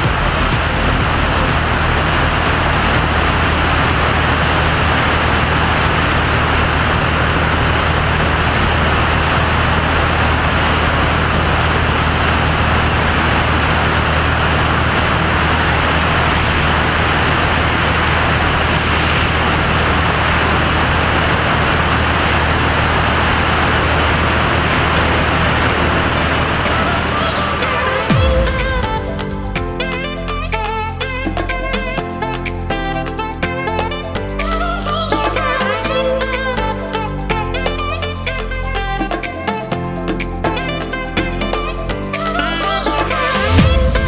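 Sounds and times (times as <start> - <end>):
airflow rushing: 0.0 - 44.0
propeller engine drone: 0.0 - 44.0.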